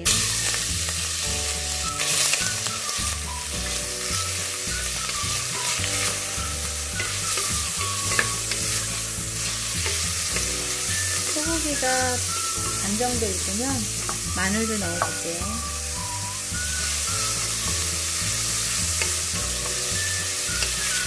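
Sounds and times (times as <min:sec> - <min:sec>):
faint background music: 0:00.0 - 0:21.0
meat sizzling in oil: 0:00.0 - 0:21.0
wooden spatula stirring: 0:01.7 - 0:15.3.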